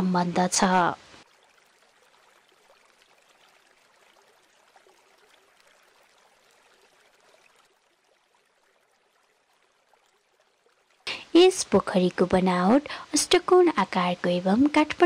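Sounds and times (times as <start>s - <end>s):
faint background hiss: 11.0s - 15.0s.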